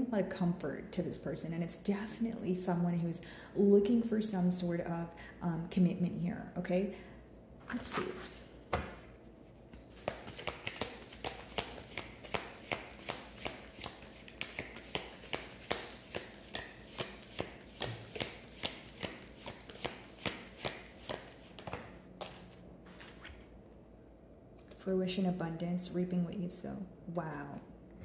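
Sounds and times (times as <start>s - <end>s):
cards being shuffled: 7.7s - 23.5s.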